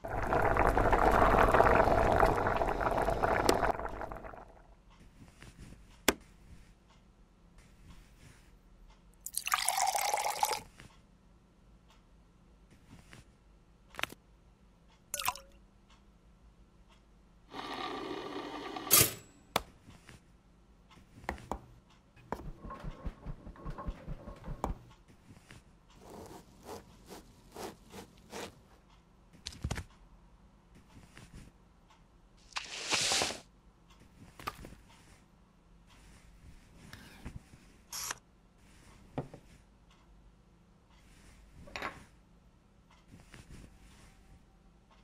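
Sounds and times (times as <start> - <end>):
pouring into ceramic mug: 0.0 - 4.6, 9.3 - 10.7, 15.2 - 15.4
knife sawing through wood: 26.0 - 28.6.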